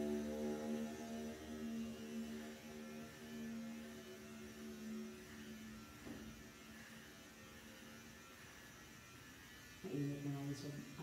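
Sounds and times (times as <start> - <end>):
electric hair clippers humming: 0.0 - 11.0.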